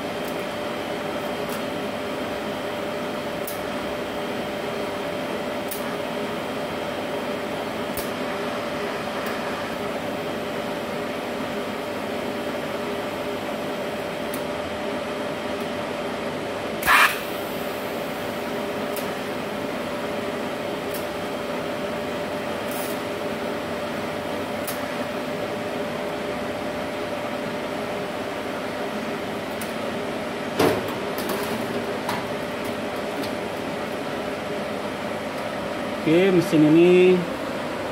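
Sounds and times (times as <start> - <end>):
welding machine humming: 0.0 - 15.0, 16.7 - 27.0.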